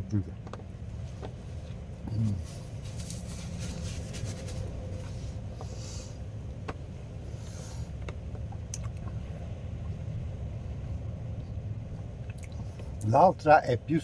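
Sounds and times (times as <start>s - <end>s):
paper napkin rustling: 2.3s - 5.4s.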